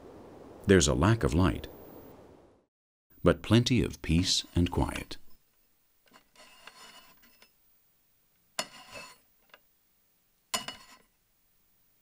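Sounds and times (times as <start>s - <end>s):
glass bottle sliding scrape: 6.1s - 7.5s, 8.6s - 9.3s, 10.6s - 11.1s.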